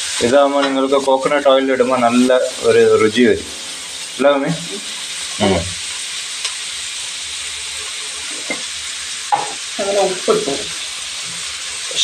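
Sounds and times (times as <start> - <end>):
onions sizzling in hot oil: 0.0 - 12.0.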